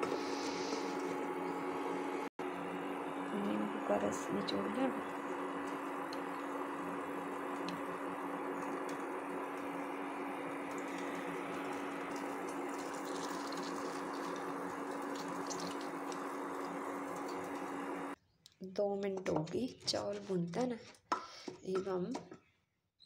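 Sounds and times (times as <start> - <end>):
rice sizzling in oil: 4.6 - 18.2.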